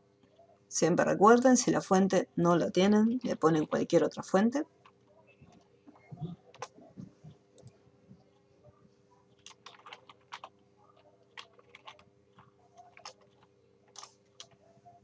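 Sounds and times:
computer keyboard typing: 4.8 - 6.9, 9.3 - 14.6.

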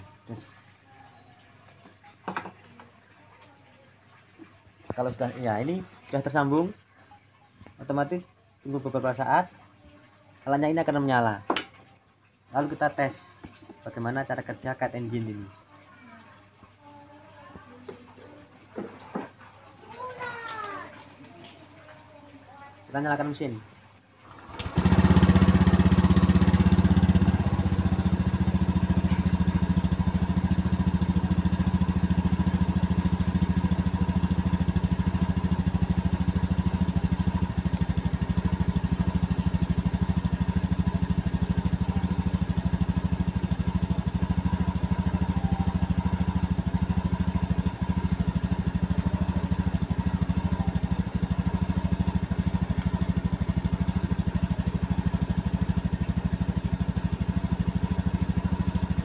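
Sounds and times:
scooter engine idling: 24.3 - 59.0.

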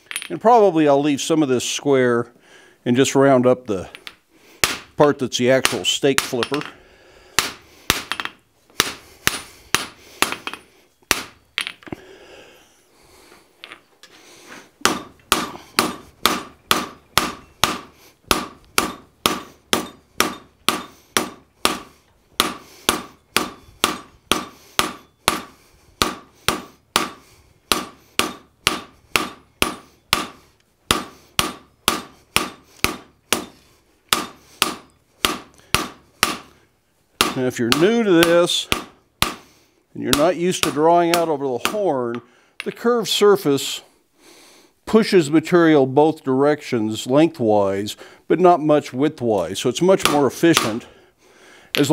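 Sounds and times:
hammer ringing on hot steel: 14.9 - 21.8.

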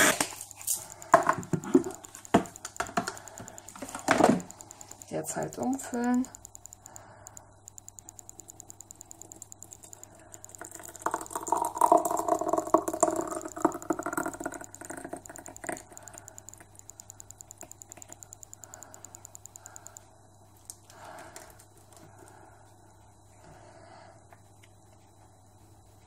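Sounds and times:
fast faint ticking: 0.7 - 22.4
jam pouring into glass jar: 10.6 - 15.1.

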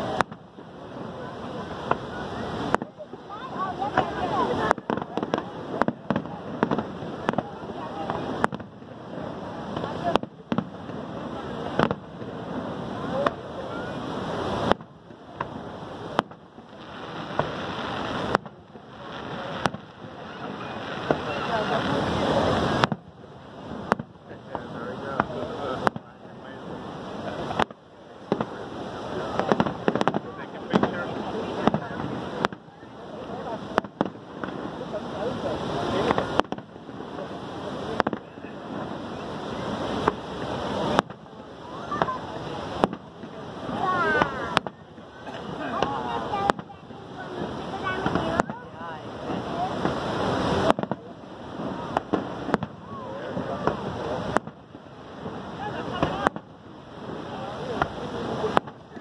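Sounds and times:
fireworks bangs: 0.0 - 59.0
waterfall roar: 0.0 - 59.0
firework shells bursting: 14.5 - 26.1, 29.3 - 32.7, 36.0 - 39.0, 42.0 - 45.0.

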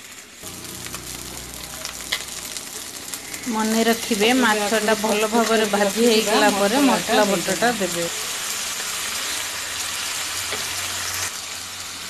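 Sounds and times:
oil sizzling with frying fish: 0.0 - 12.0.

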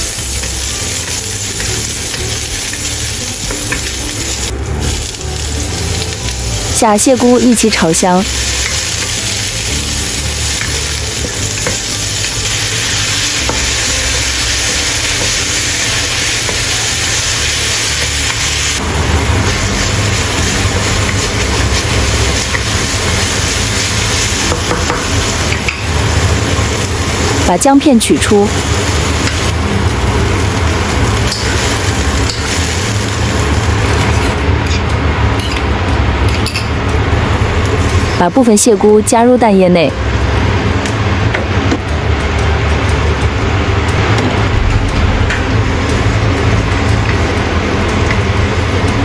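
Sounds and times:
mushrooms sizzling in oil: 0.0 - 34.4.

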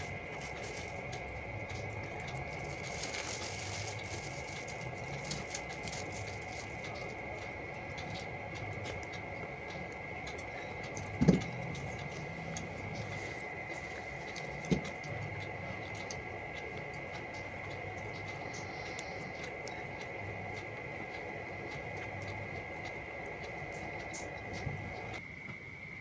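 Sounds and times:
foil paper crinkling: 0.0 - 1.2, 2.2 - 7.2.

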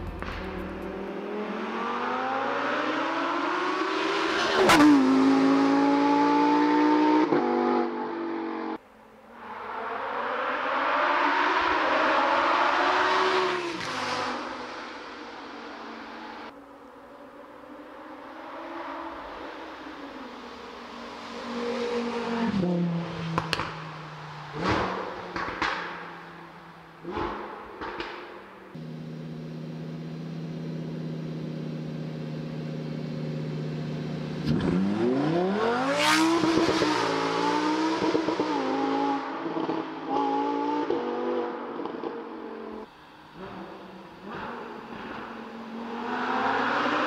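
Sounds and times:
sports car engine running: 0.0 - 1.6, 28.8 - 35.8
sports car engine accelerating: 0.0 - 8.8, 18.2 - 47.0.

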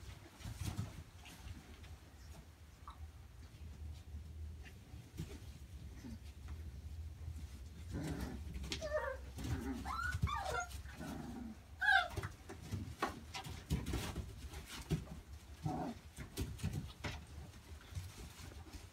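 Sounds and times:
paws rustling in wood shavings: 7.3 - 18.9
puppies crying while playing: 8.7 - 11.1, 11.7 - 12.8.

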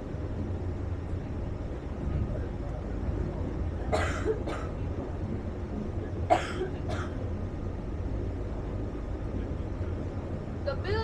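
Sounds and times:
boat engine rumbling: 0.0 - 11.0
person coughing: 3.9 - 4.8, 6.3 - 7.2.

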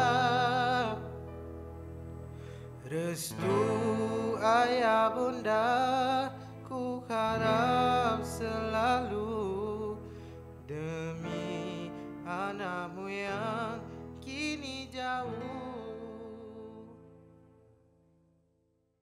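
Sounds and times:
person singing: 0.0 - 1.3, 2.7 - 17.0
acoustic guitar: 0.0 - 17.0.

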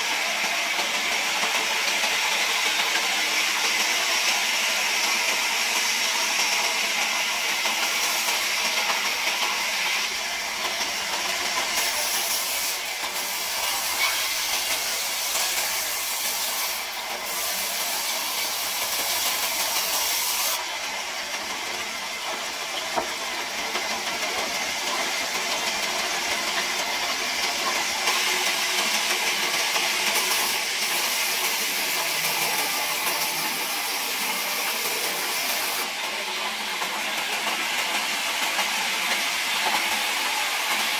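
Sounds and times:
band saw cutting log: 10.7 - 20.6, 22.1 - 40.9.

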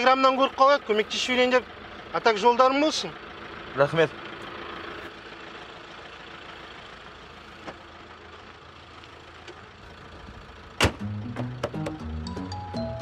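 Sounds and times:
engine idling: 0.0 - 13.0
hood slammed shut: 10.8 - 12.0
music with a low beat: 11.0 - 13.0.

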